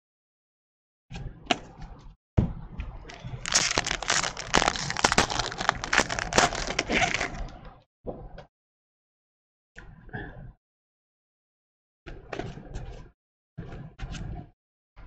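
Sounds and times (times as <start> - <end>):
plastic wrapper crinkling: 3.1 - 7.6.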